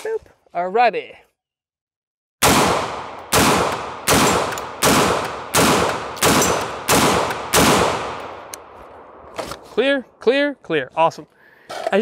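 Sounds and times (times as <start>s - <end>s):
loud gunshots with ringing tail: 2.4s - 8.4s.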